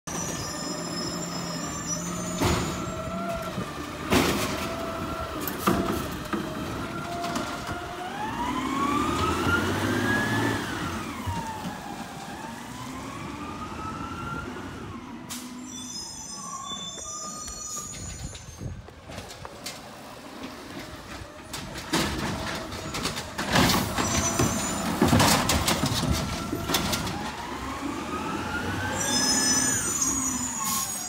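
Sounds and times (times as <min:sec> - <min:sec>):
garbage truck engine whining: 0:00.1 - 0:31.0.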